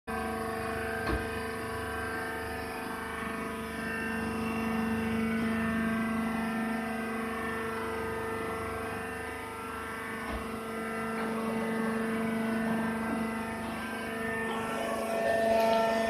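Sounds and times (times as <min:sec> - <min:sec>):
baler machine hum: 0:00.1 - 0:16.0.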